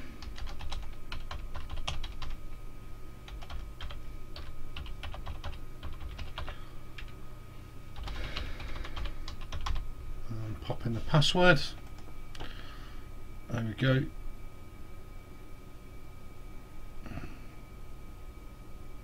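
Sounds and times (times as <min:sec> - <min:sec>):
faint steady hum: 0:00.0 - 0:19.0
keyboard typing: 0:00.2 - 0:02.4, 0:03.3 - 0:07.2, 0:08.0 - 0:09.8, 0:11.8 - 0:12.5.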